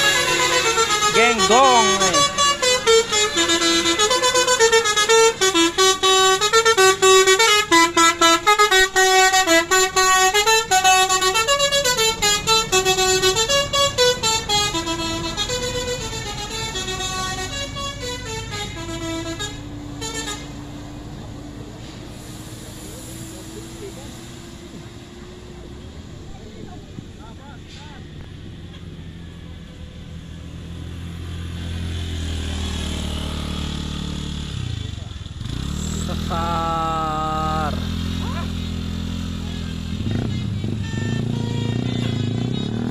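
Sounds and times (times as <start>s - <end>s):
musical bus air horn: 0.0s - 20.7s, 39.4s - 42.9s
bus engine hum: 0.0s - 42.9s.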